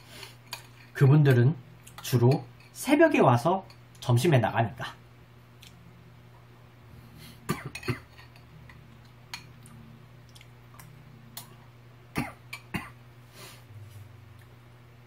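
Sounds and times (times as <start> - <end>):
steady low hum: 0.0 - 15.0
chewing: 8.9 - 11.6.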